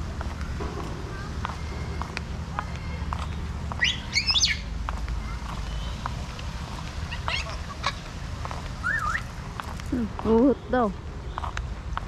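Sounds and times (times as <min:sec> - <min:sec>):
low rumble: 0:00.0 - 0:10.4
bird chirps: 0:03.2 - 0:04.7, 0:05.6 - 0:06.1, 0:07.1 - 0:08.1, 0:08.8 - 0:09.3
wavering whistled bird call: 0:03.8 - 0:04.7, 0:08.8 - 0:09.3.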